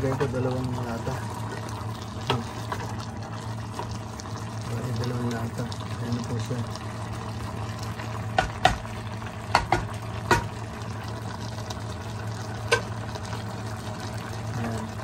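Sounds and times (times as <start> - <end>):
spatula clacking against a pot: 8.4 - 8.8, 9.5 - 10.5.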